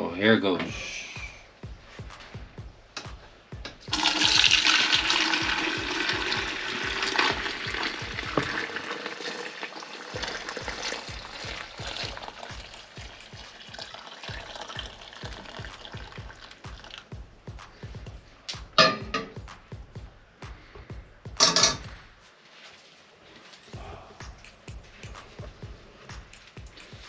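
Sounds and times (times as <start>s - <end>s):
liquid pouring and splashing: 3.9s - 17.1s.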